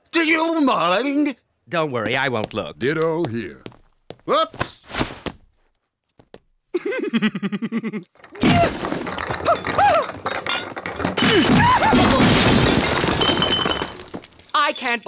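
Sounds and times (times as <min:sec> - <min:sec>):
glass bottles clinking and breaking: 0:08.2 - 0:15.0.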